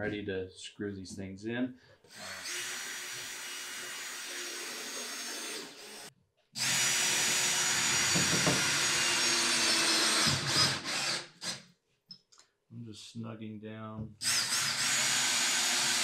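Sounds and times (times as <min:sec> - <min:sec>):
cordless drill motor whine: 0:02.1 - 0:11.6, 0:14.2 - 0:16.0.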